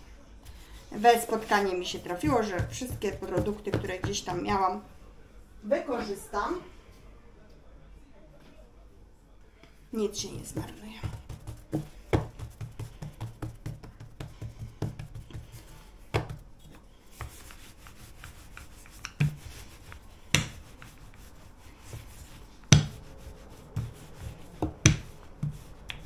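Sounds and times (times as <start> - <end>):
knocks on kitchen board: 2.2 - 4.6, 10.5 - 15.4, 22.7 - 22.9, 24.6 - 25.6.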